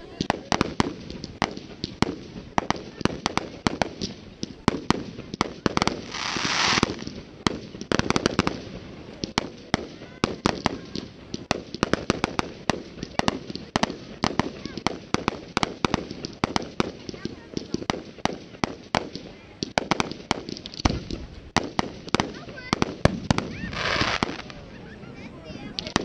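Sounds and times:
fireworks bursting: 0:00.0 - 0:26.0
loud hiss: 0:06.0 - 0:07.0.

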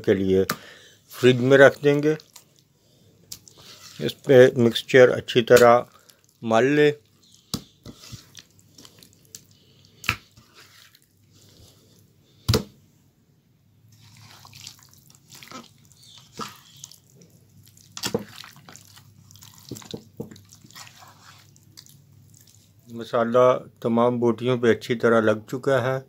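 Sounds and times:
wet squelching and scraping: 0:01.1 - 0:04.7, 0:05.3 - 0:12.1, 0:13.9 - 0:22.9.

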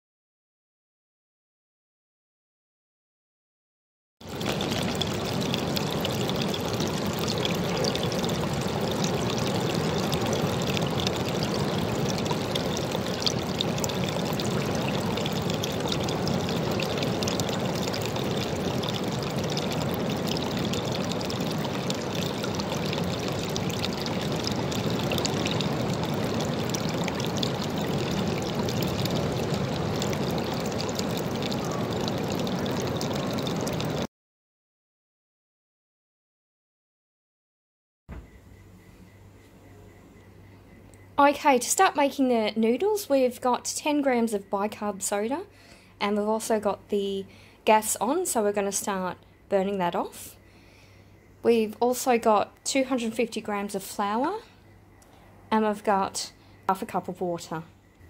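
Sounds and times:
water pouring into a pool: 0:04.2 - 0:34.1.

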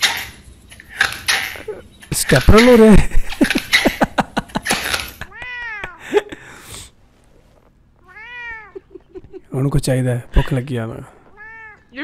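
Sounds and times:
cat meowing: 0:05.3 - 0:06.0, 0:08.0 - 0:09.0, 0:11.3 - 0:12.0.

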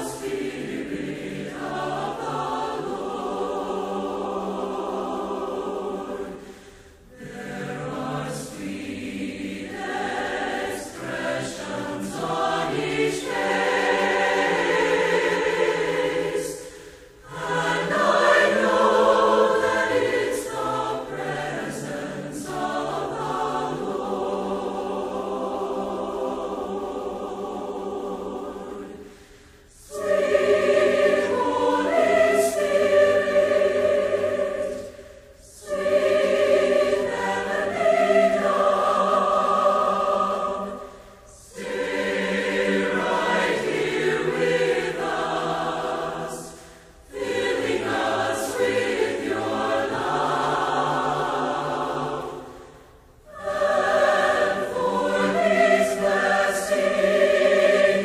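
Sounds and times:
choir singing unaccompanied: 0:00.0 - 0:58.0.

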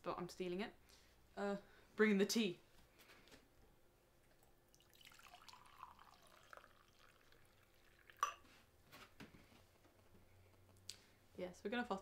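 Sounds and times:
tea pouring into mug: 0:04.3 - 0:08.5.

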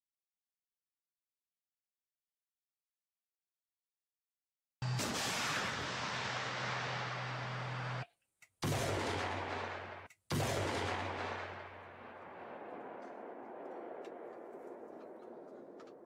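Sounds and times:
heavy weapon blasts: 0:04.8 - 0:08.0.

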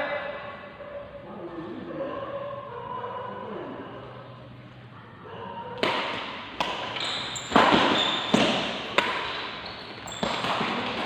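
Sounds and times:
rackets hitting shuttlecock: 0:05.8 - 0:11.0.

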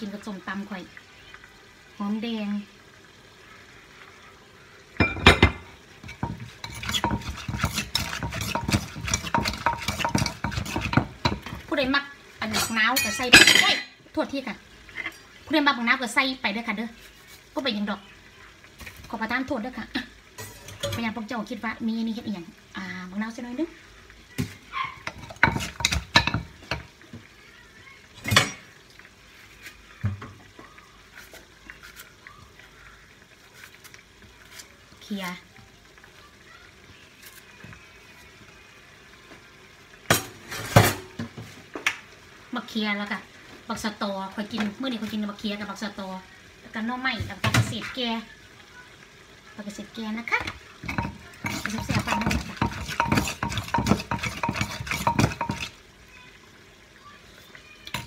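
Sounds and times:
wooden pestle pounding in mortar: 0:06.8 - 0:11.6, 0:51.0 - 0:55.7.

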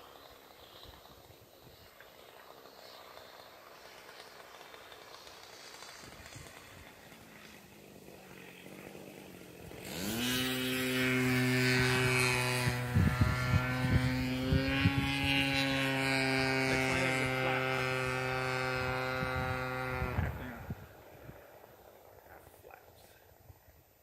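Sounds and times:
model airplane engine revving: 0:00.0 - 0:22.6
sharp engine crackles: 0:00.0 - 0:23.3.

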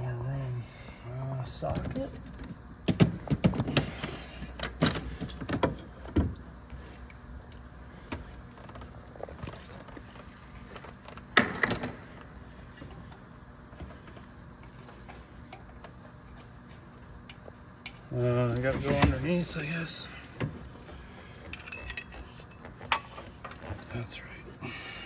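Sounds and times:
metal hand tools clinking: 0:21.6 - 0:23.2.

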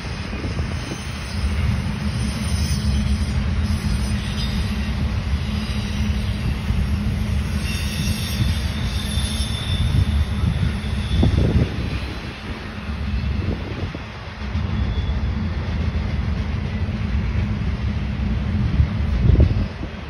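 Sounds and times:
freight train rumbling past: 0:00.0 - 0:20.0
wheel squeal: 0:00.7 - 0:12.4, 0:14.7 - 0:15.4.

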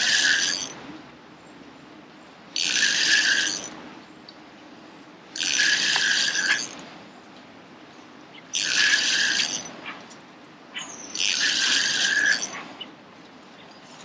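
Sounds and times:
fishing reel whirring: 0:00.0 - 0:00.8, 0:02.6 - 0:03.8, 0:05.4 - 0:06.8, 0:08.5 - 0:09.8, 0:11.1 - 0:12.6.

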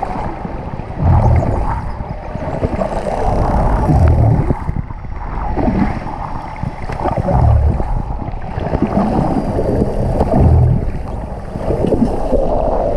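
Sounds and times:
muffled underwater rushing water: 0:00.0 - 0:12.9
low swelling pulse: 0:01.0 - 0:01.9, 0:07.3 - 0:08.1, 0:10.2 - 0:11.2.

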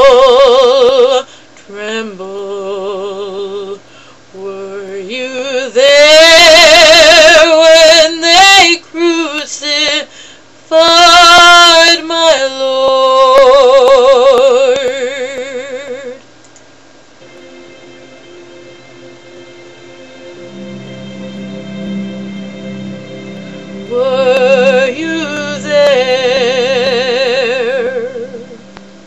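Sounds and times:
woman singing with vibrato: 0:00.0 - 0:10.1, 0:10.7 - 0:16.2, 0:22.7 - 0:29.0.

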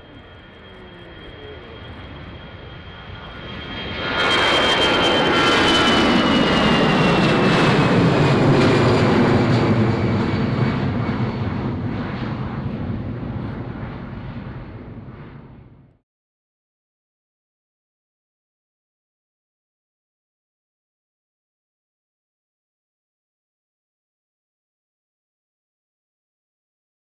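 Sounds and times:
jet engines roaring at takeoff: 0:00.0 - 0:16.0.

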